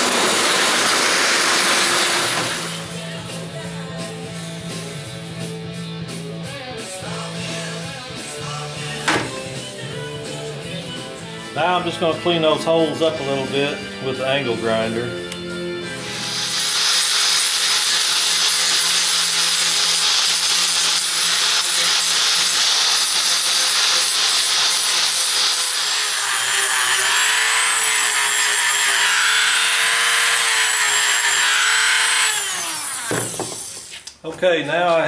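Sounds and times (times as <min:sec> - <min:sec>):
angle grinder grinding steel: 0:00.0 - 0:03.8, 0:10.0 - 0:34.2
rotary tool whining: 0:16.0 - 0:34.2.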